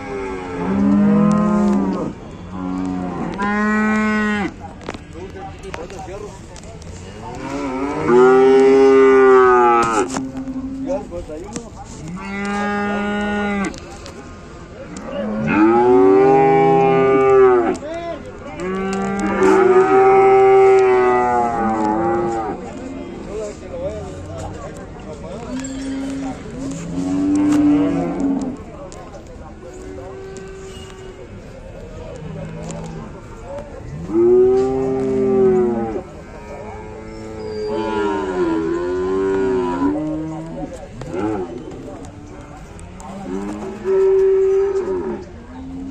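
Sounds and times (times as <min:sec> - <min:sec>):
cattle mooing: 0:00.0 - 0:04.6, 0:14.9 - 0:17.8, 0:18.6 - 0:22.8, 0:25.6 - 0:28.5, 0:34.0 - 0:41.8.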